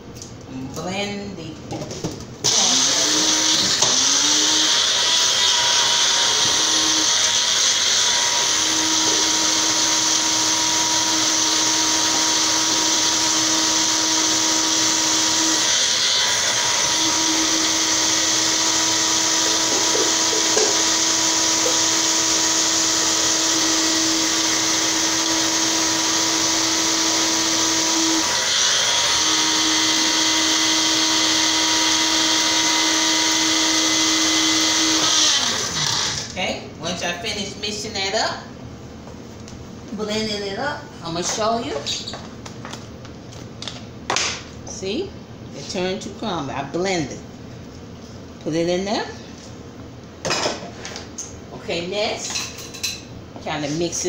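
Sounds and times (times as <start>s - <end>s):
electric blender grinding: 2.4s - 36.4s.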